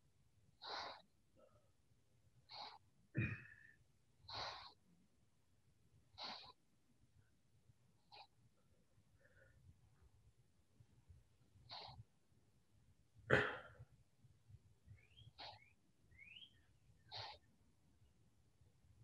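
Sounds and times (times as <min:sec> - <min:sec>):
person breathing quickly: 0:00.6 - 0:01.1.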